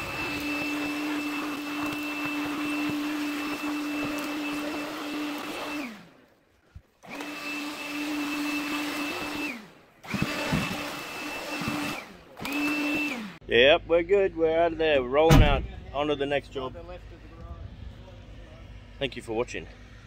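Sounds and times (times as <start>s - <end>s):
vacuum motor whine: 0.0s - 6.2s, 7.0s - 13.4s.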